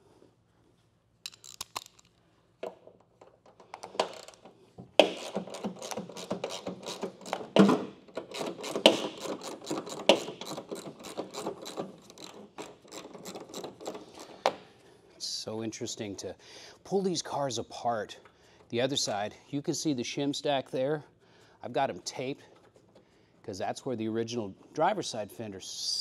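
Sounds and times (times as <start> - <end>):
hand ratchet clicking: 1.3 - 2.1, 3.7 - 14.5.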